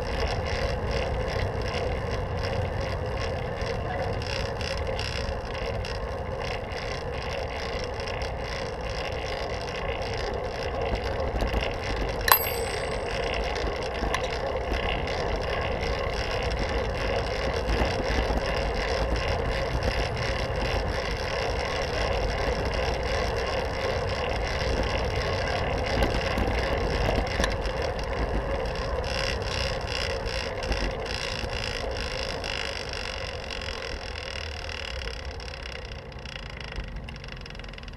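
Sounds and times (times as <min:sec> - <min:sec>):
bicycle tyre and drivetrain noise: 0:00.0 - 0:12.1
sharp click: 0:12.3 - 0:13.2.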